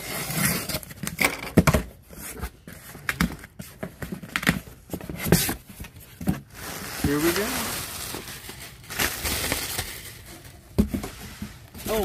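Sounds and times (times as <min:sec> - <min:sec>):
packing tape tearing: 0:07.0 - 0:10.6.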